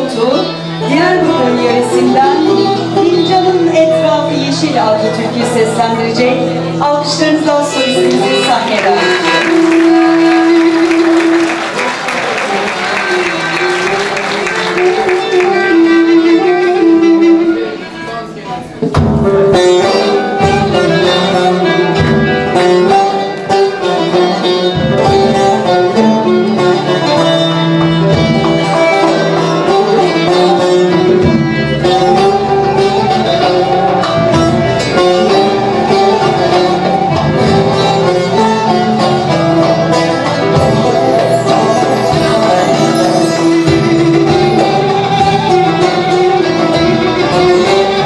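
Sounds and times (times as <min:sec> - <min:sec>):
plucked lutes and guitar melody: 0:00.0 - 0:48.0.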